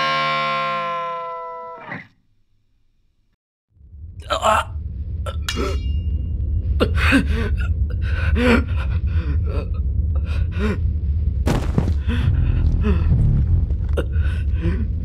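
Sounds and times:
low rumble: 3.7s - 15.0s
person gasping and groaning: 6.8s - 10.9s, 12.0s - 15.0s.

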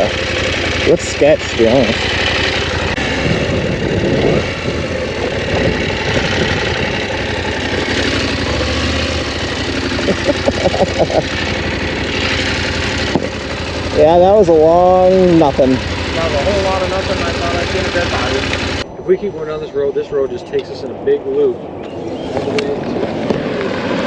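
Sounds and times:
motorcycle engine running: 0.0s - 18.8s.

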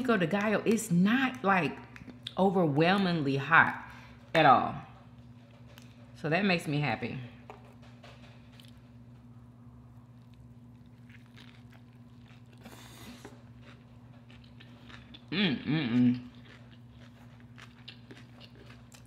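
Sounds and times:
person chewing food: 10.0s - 19.0s
person humming with enjoyment: 15.3s - 16.2s.

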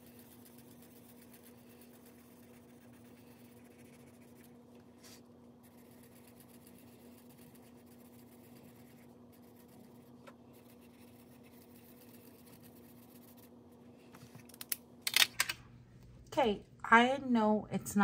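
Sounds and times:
pen scratching on paper: 0.0s - 13.6s
steady low hum: 0.0s - 18.0s.

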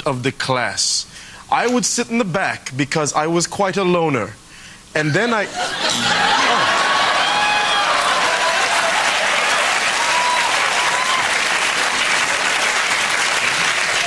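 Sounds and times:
audience applauding: 5.9s - 14.0s.

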